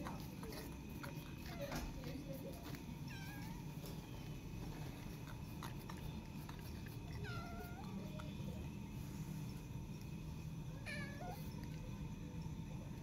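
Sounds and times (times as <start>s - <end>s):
cat meowing: 3.1s - 3.6s, 7.1s - 8.0s, 10.8s - 11.6s.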